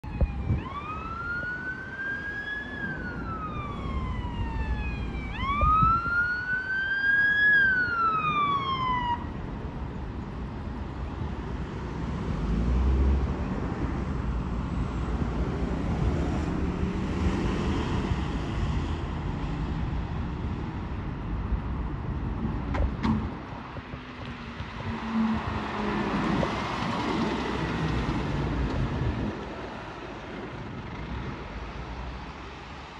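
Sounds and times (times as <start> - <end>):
fire engine siren wailing: 0.0 - 9.4
road traffic: 0.0 - 32.9.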